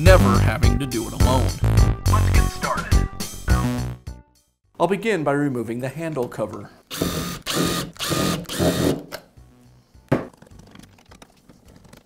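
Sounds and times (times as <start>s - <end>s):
cordless drill motor whirring: 6.9s - 9.0s.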